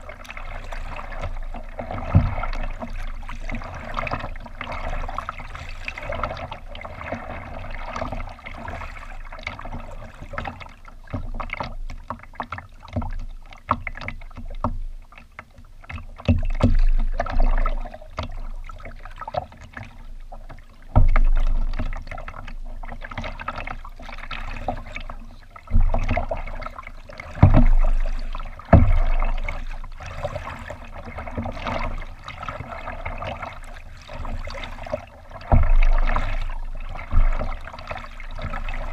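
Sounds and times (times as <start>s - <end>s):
water lapping against kayak: 0.0s - 38.9s
heavy dull thumps: 28.7s - 29.5s, 35.4s - 37.6s.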